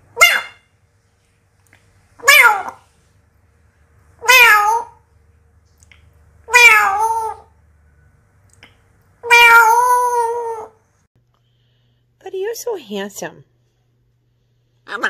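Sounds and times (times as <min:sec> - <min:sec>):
parrot mimicking cat meow: 0:00.1 - 0:00.6, 0:02.2 - 0:02.8, 0:04.2 - 0:05.0, 0:06.5 - 0:07.5, 0:09.2 - 0:10.8.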